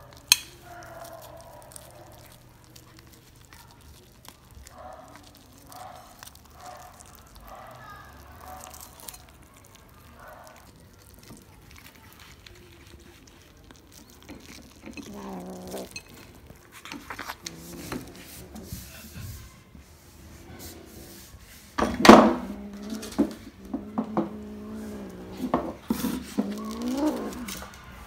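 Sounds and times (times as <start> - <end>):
kitten growling cries: 14.9 - 16.2, 22.2 - 27.8.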